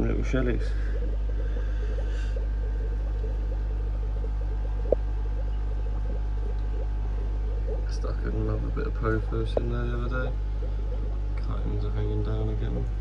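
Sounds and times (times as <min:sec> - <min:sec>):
aquarium equipment hum: 0:00.0 - 0:13.0
water bubbling and trickling: 0:00.0 - 0:13.0.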